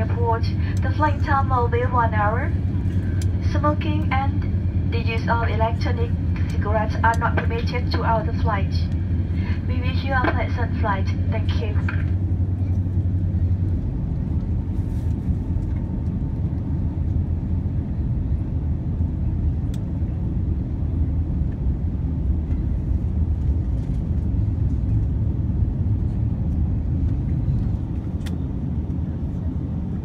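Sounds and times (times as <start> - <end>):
airplane engines rumbling: 0.0 - 30.0
wheels rolling on taxiway: 11.9 - 30.0.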